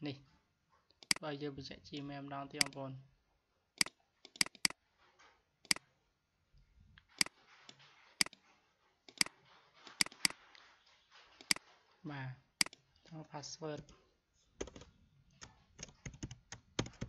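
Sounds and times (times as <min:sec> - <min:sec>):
computer mouse clicking: 0:00.9 - 0:01.2, 0:02.6 - 0:02.8, 0:03.8 - 0:04.8, 0:07.0 - 0:08.4, 0:09.1 - 0:10.6, 0:11.4 - 0:11.6, 0:12.6 - 0:12.8.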